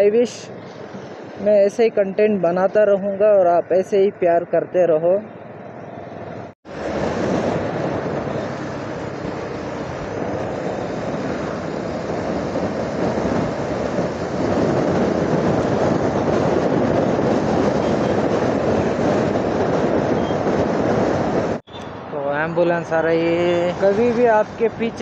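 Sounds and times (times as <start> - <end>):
wind rushing on microphone: 5.1 - 25.0
motorcycle engine and tyre noise: 5.3 - 22.2.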